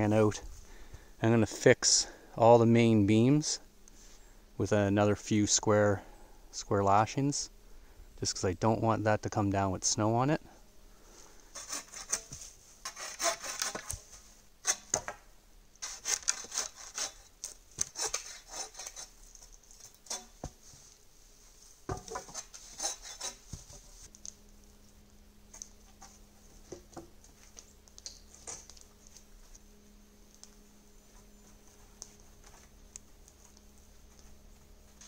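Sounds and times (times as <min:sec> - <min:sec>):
hand saw cutting wood: 0:11.6 - 0:15.0, 0:15.8 - 0:19.2, 0:22.0 - 0:23.5.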